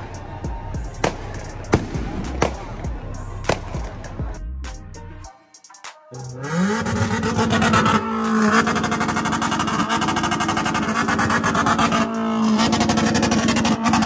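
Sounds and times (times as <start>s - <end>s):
car engine revving high: 6.3s - 14.0s
exhaust crackle: 6.3s - 14.0s.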